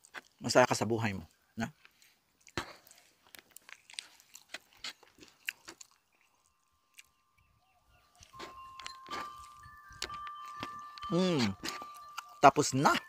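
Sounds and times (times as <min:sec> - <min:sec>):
chewing with wet mouth clicks: 0:01.8 - 0:07.5, 0:08.1 - 0:12.4
faint steady tone: 0:06.1 - 0:13.0.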